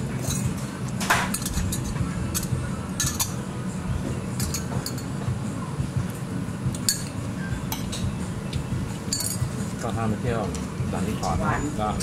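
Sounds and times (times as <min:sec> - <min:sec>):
metal spoons clinking on jars: 0:01.3 - 0:03.4, 0:04.4 - 0:05.1, 0:09.1 - 0:09.4.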